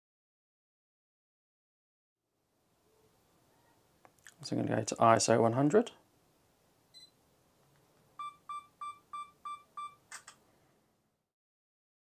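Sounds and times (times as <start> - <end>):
self-timer countdown beeps: 8.2 - 10.0
camera beeps: 8.2 - 10.3.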